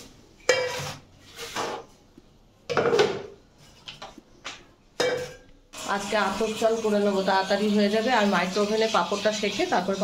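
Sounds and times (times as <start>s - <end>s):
pots and utensils clinking: 0.4s - 1.9s, 2.7s - 3.4s, 5.0s - 7.0s.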